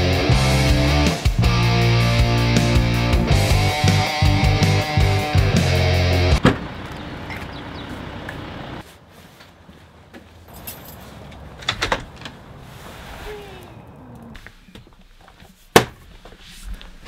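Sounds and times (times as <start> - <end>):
outdoor ambience: 6.4 - 17.0
keys jangling and clicking: 10.5 - 11.4.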